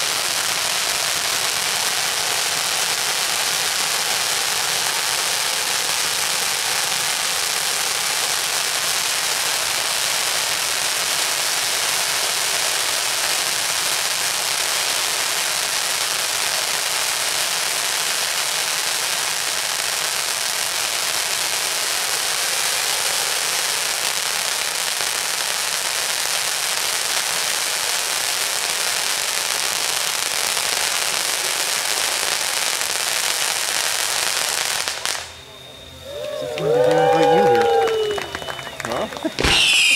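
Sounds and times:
firecrackers crackling: 0:00.0 - 0:39.9.

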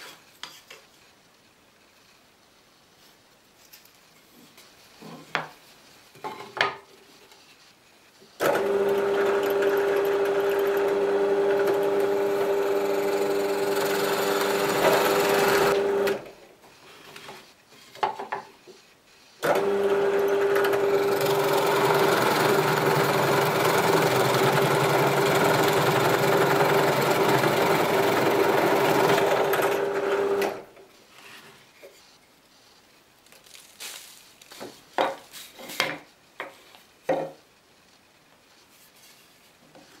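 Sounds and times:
drill press boring wood: 0:08.4 - 0:16.3, 0:19.4 - 0:30.7.

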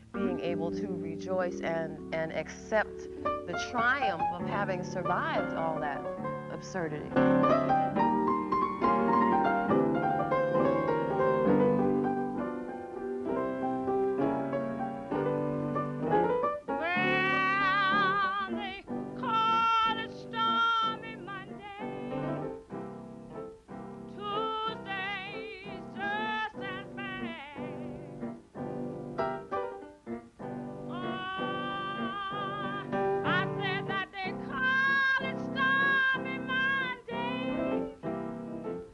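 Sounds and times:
woman singing with vibrato: 0:00.0 - 0:06.0, 0:16.8 - 0:22.5, 0:24.2 - 0:28.3, 0:30.9 - 0:37.9
piano chords: 0:00.0 - 0:38.9.

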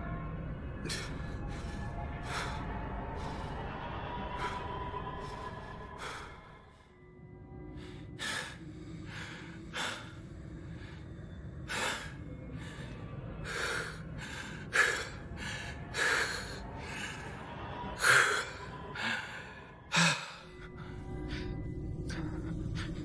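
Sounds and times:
man panting heavily: 0:07.8 - 0:23.0.

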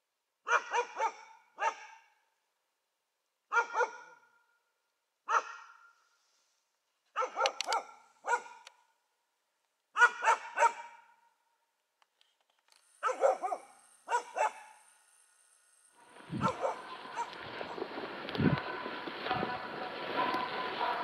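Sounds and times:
dog barking: 0:00.4 - 0:02.2, 0:03.5 - 0:04.4, 0:05.2 - 0:06.0, 0:07.1 - 0:08.7, 0:09.9 - 0:11.3, 0:13.0 - 0:14.8, 0:16.3 - 0:17.4.

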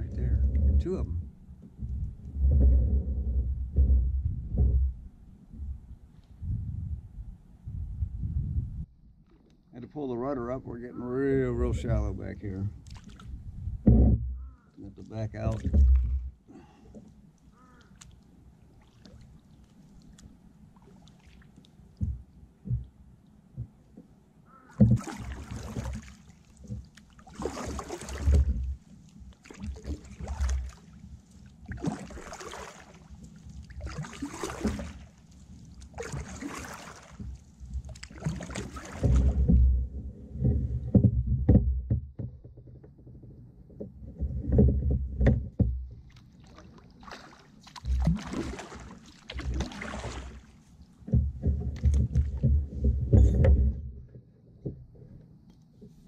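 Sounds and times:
low rumbling knocks: 0:00.0 - 0:07.0, 0:13.4 - 0:14.6, 0:15.5 - 0:16.4, 0:38.9 - 0:43.0, 0:43.8 - 0:46.1, 0:51.0 - 0:55.0
paddle splashing in water: 0:11.8 - 0:54.9.

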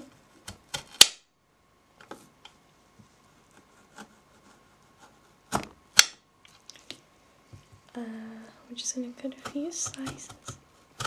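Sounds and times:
knife slicing cucumber: 0:09.3 - 0:11.0.

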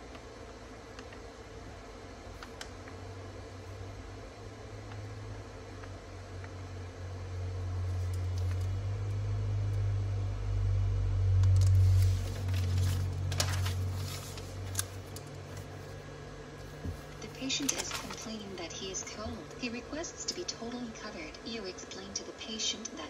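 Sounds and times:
low hum: 0:00.0 - 0:23.0
paper crackling and rustling: 0:11.6 - 0:16.0, 0:16.6 - 0:19.5.

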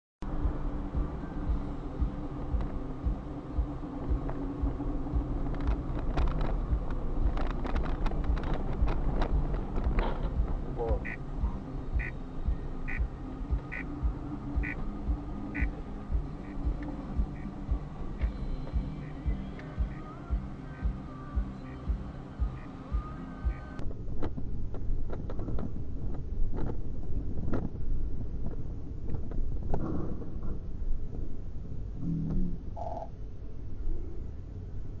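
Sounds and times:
engine and road rumble: 0:00.2 - 0:35.0
low thumps: 0:00.3 - 0:23.9
sharp ticks: 0:02.0 - 0:23.8.

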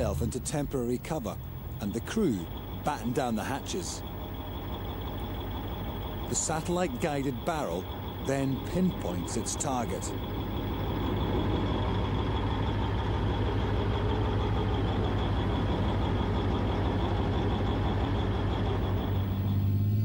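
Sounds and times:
thin high whine: 0:00.0 - 0:16.7
diesel engine running: 0:00.0 - 0:20.0.

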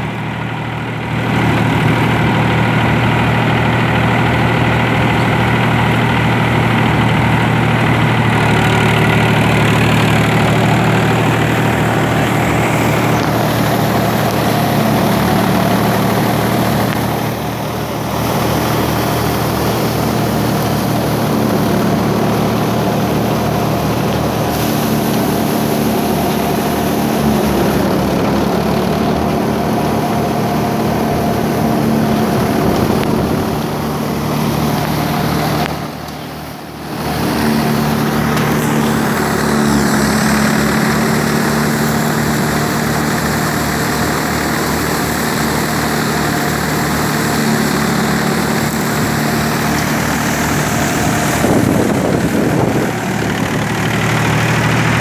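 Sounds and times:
tractor engine and thresher drone: 0:00.0 - 0:55.0.

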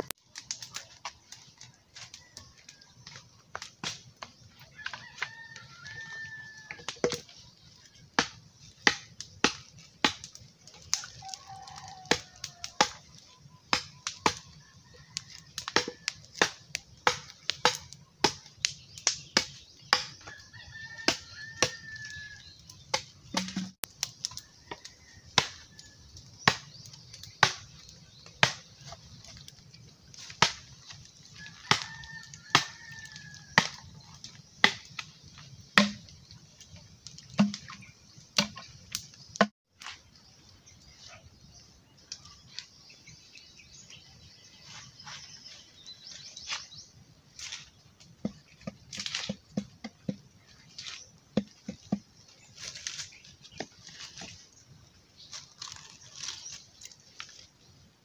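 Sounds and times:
rooster crowing: 0:04.6 - 0:07.0, 0:11.1 - 0:12.8, 0:20.2 - 0:22.6, 0:31.4 - 0:33.8.

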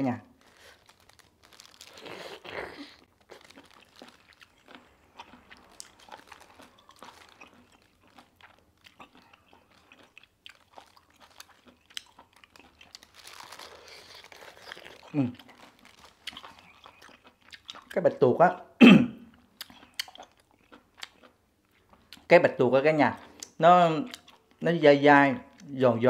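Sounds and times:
person biting and chewing: 0:00.3 - 0:18.0, 0:19.6 - 0:22.3.

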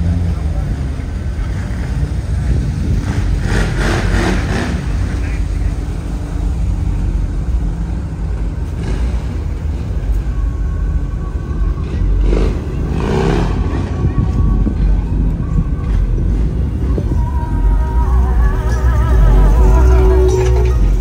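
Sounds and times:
car engine rumbling: 0:00.0 - 0:21.0.

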